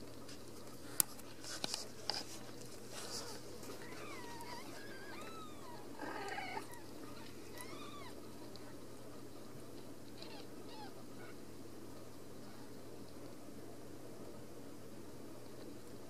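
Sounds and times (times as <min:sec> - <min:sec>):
kittens mewing: 0:03.2 - 0:08.2, 0:10.2 - 0:11.4.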